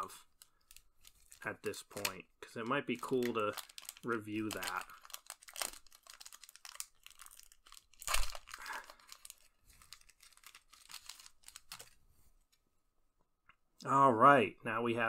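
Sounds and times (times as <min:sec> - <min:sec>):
foil wrapper crinkling: 0:00.0 - 0:12.0
foil wrapper ripping: 0:02.9 - 0:12.0.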